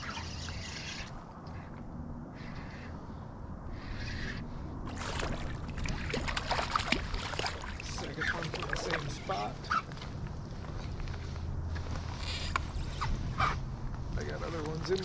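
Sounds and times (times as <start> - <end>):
fish thrashing: 4.9 - 9.2
water splashing: 4.9 - 9.4.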